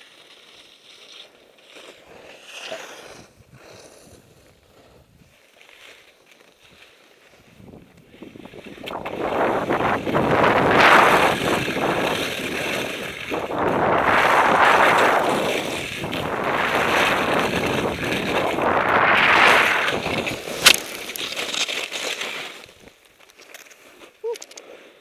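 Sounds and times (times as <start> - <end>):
skier falling into snow: 0.0 - 24.3
scuffling in snow: 0.0 - 25.0
skis hissing and scraping on snow: 0.0 - 25.0
wind buffeting microphone: 7.6 - 20.8.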